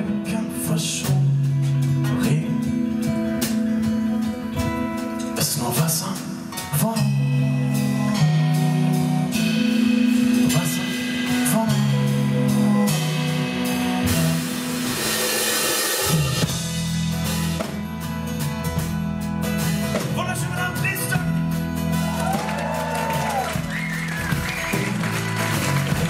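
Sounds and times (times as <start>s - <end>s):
man singing: 0.0s - 14.4s
strummed acoustic guitar: 0.0s - 15.0s, 16.4s - 22.2s
live band playing: 0.0s - 26.0s.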